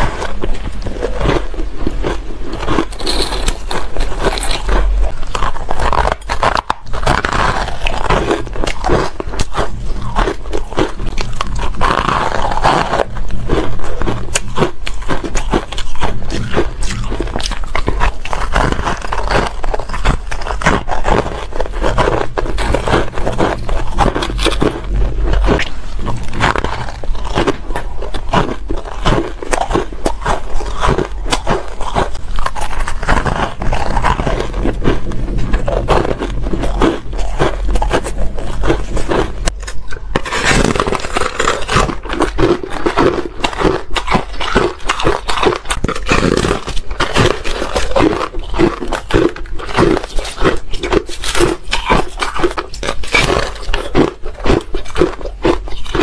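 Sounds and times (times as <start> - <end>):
biting frozen ice slab: 0.0 - 56.0
crunching shaved ice: 0.0 - 56.0
steady low hum: 0.0 - 56.0.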